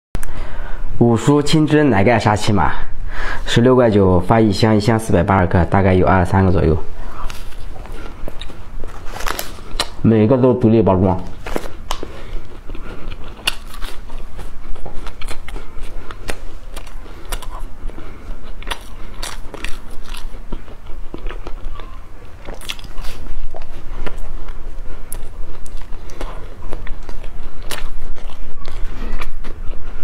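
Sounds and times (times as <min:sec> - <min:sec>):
crunchy bar being chewed: 0:07.1 - 0:10.0, 0:11.2 - 0:30.0.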